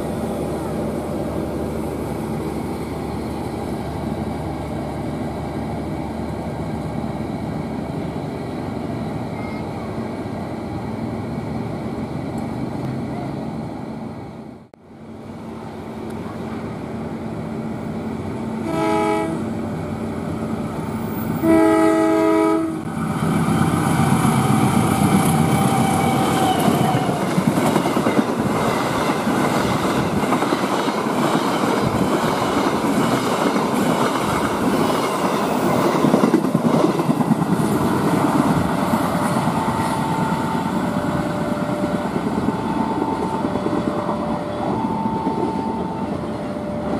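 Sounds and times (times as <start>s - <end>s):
passenger coaches rolling on rails: 0.0s - 46.9s
train wheel noise: 0.0s - 46.9s
diesel locomotive horn: 18.6s - 19.5s, 21.4s - 22.9s.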